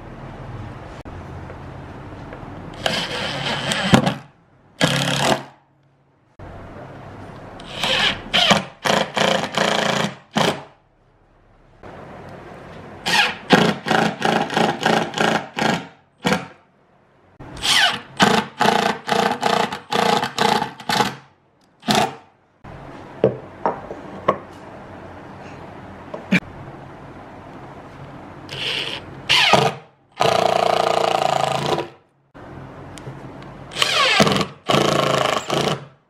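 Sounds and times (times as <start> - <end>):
impact driver whirring: 2.8 - 5.5, 28.5 - 32.0, 33.7 - 35.9.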